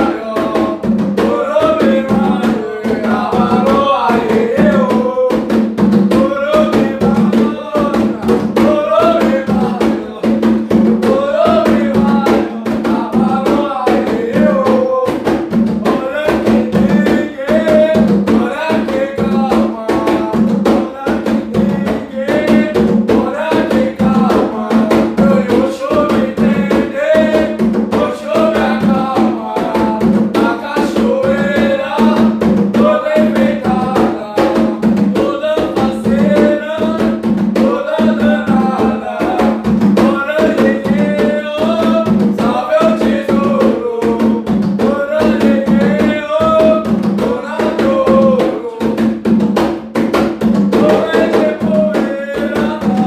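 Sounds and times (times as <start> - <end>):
hand drums: 0.0 - 53.0
men singing: 0.0 - 53.0.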